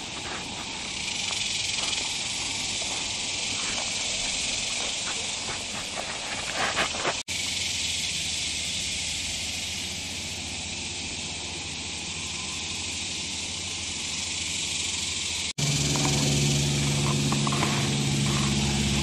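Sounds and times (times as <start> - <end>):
insect chorus hissing: 0.0 - 19.0
light scraping and rustling: 5.0 - 7.2, 16.8 - 19.0.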